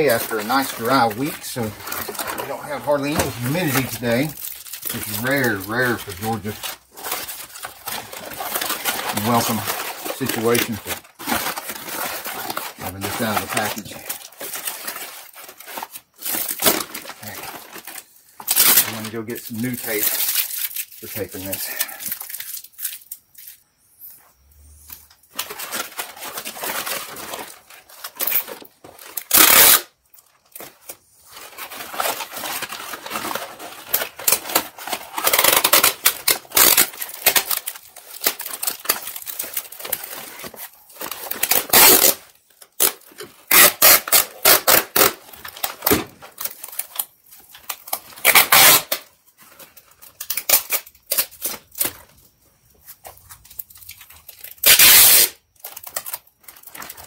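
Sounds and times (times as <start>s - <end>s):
adhesive tape ripping off roll: 0.0s - 6.5s, 7.1s - 17.4s, 18.5s - 22.9s, 29.1s - 30.0s, 31.9s - 39.4s, 41.3s - 42.2s, 42.8s - 46.0s, 48.1s - 49.1s, 53.8s - 56.0s
paper crinkling and rustling: 0.0s - 57.0s.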